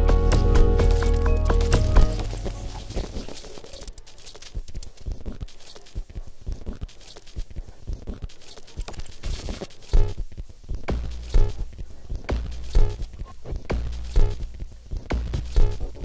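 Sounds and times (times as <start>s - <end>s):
glitch electronic music: 0.0s - 4.0s, 10.9s - 16.0s.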